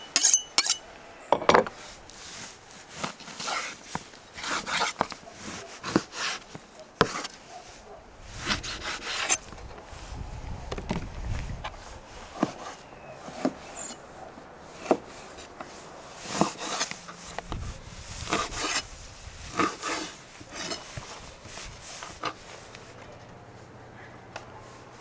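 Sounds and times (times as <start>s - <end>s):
knife slicing scrape: 2.1s - 3.8s, 4.4s - 7.4s, 8.4s - 9.5s, 16.2s - 17.4s, 18.1s - 22.6s.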